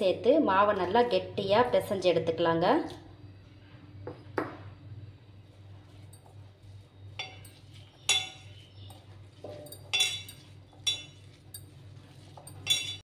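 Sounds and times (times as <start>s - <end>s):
steady low hum: 0.0s - 13.0s
bangles clinking on steel bowl: 7.2s - 13.0s.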